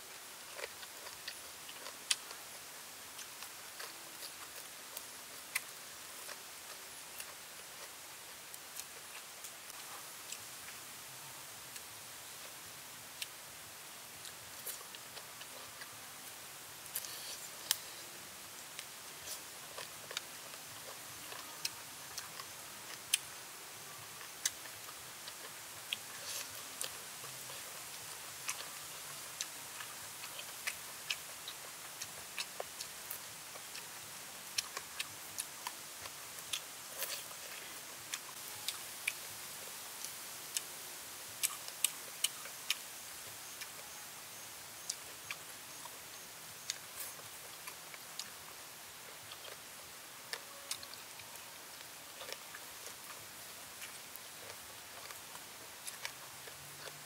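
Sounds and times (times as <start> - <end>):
steady high hiss: 0.0 - 57.0
person chewing and sucking: 0.5 - 10.4, 16.9 - 18.1, 18.8 - 23.3, 24.1 - 39.3, 49.0 - 53.2, 53.8 - 57.0.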